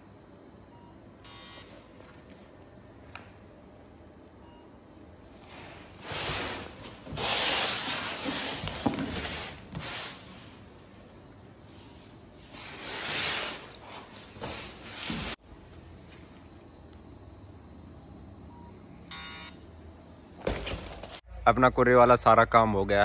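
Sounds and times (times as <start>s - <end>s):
cardboard parcels scraping on tiles: 5.5s - 10.4s, 12.4s - 15.4s.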